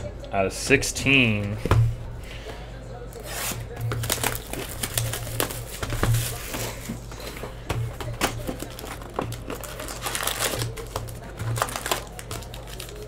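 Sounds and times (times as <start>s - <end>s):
plastic shrink wrap crinkling: 3.2s - 7.0s, 7.9s - 13.0s.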